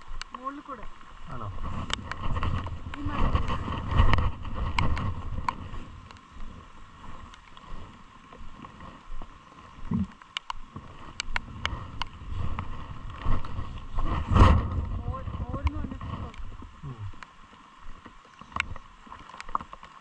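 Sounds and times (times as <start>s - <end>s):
wind gusting on microphone: 1.2s - 7.3s, 10.9s - 17.2s.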